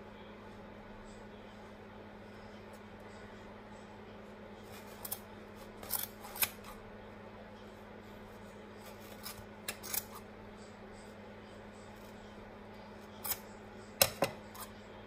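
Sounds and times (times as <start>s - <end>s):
scissors snipping yarn: 4.7s - 6.8s, 8.8s - 10.2s, 13.2s - 14.7s.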